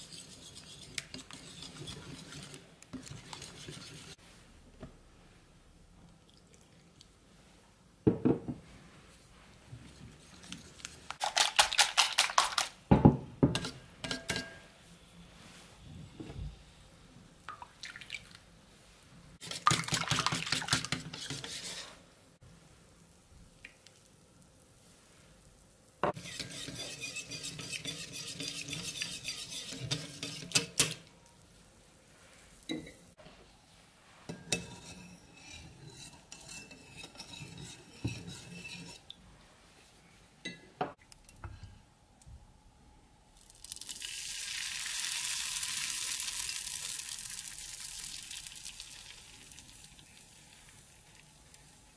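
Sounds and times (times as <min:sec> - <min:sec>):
whisk beating batter in bowl: 0:00.0 - 0:04.2, 0:26.2 - 0:30.7
batter sizzling in frying pan: 0:43.4 - 0:51.9.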